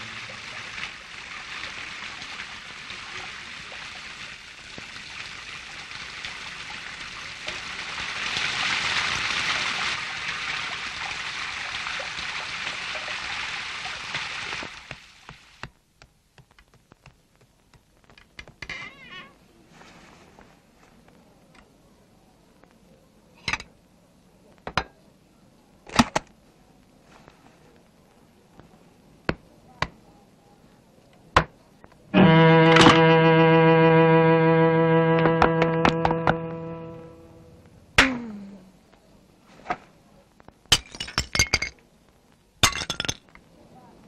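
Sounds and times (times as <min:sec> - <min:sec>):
water spraying and gushing: 0:00.0 - 0:15.7
faint clicks and taps: 0:14.7 - 0:18.7, 0:26.0 - 0:30.1, 0:40.3 - 0:40.7.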